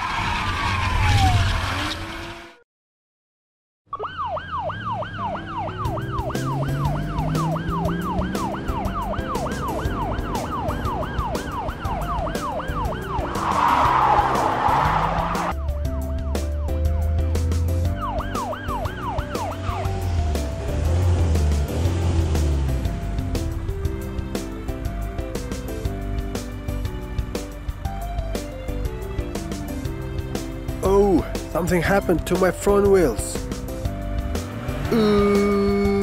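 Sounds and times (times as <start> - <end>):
ambulance siren yelping: 3.9 - 17.0, 17.9 - 20.6
background music with beat: 5.8 - 32.4.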